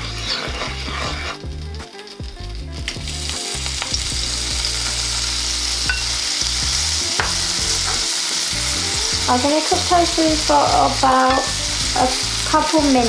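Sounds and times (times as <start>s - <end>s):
tofu sizzling in oil: 0.0s - 13.0s
wooden spoon knocking on pan: 7.2s - 8.1s, 11.2s - 11.6s.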